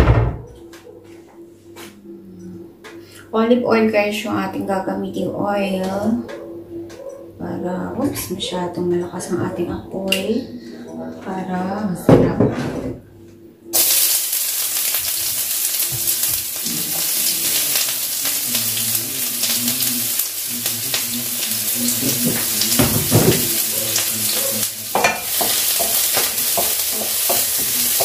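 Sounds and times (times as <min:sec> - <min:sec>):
food sizzling in frying pan: 0:13.8 - 0:28.0.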